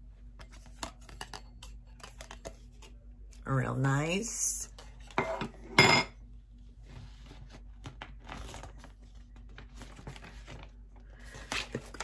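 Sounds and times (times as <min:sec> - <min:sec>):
paper rustling: 0:06.9 - 0:12.0.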